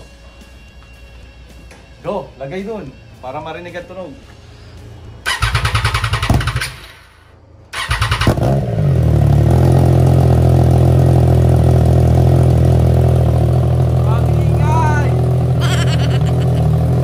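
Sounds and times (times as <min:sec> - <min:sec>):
motorcycle engine cranking: 0:05.2 - 0:06.9, 0:07.7 - 0:08.6
motorcycle engine idling: 0:05.2 - 0:06.9, 0:08.8 - 0:17.0.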